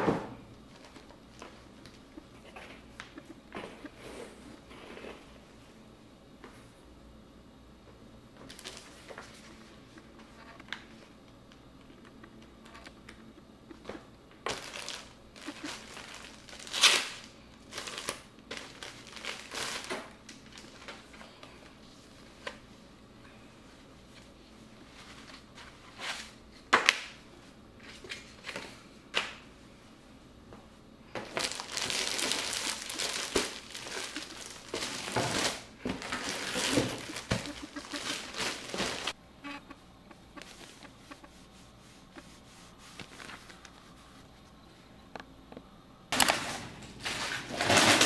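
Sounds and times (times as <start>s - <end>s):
plastic packaging crinkling: 8.4s - 9.4s, 14.4s - 21.1s, 31.2s - 39.2s.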